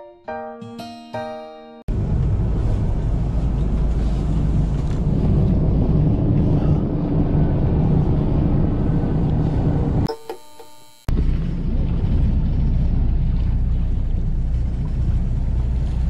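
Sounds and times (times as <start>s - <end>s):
boat engine: 1.3s - 16.0s
wind on microphone: 1.9s - 10.1s.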